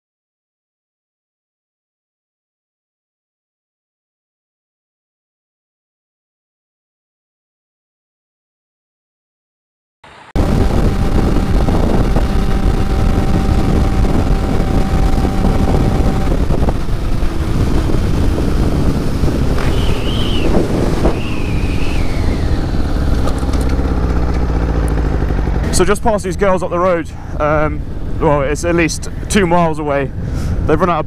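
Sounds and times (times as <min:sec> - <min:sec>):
wind rushing over microphone: 0:10.1 - 0:31.0
motorcycle engine running: 0:10.4 - 0:29.2
high whistling tones: 0:19.6 - 0:23.0.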